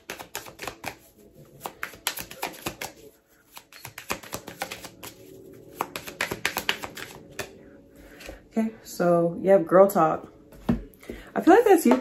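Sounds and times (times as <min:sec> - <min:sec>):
cards being shuffled: 0:00.0 - 0:07.5.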